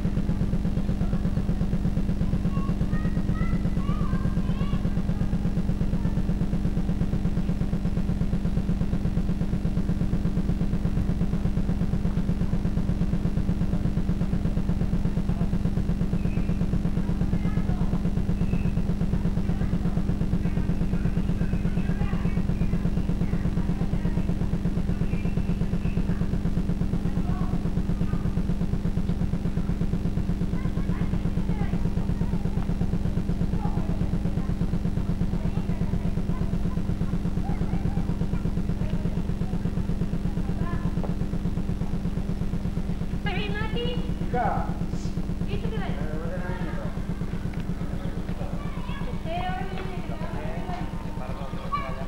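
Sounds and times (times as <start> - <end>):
loud machine hum with flutter: 0.0 - 52.0
faint high chirps: 16.0 - 18.9, 20.4 - 26.4.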